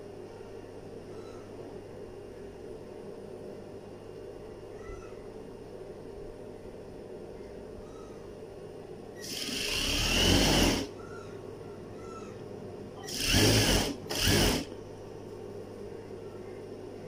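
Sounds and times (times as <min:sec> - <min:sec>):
sewing machine stitching: 0:09.2 - 0:10.9, 0:13.0 - 0:14.7.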